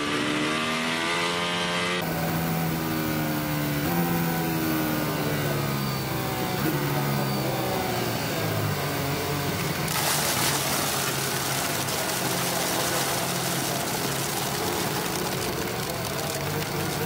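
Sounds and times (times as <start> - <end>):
race car engine at low revs: 0.0 - 17.0
tyres hissing through gravel: 9.9 - 17.0.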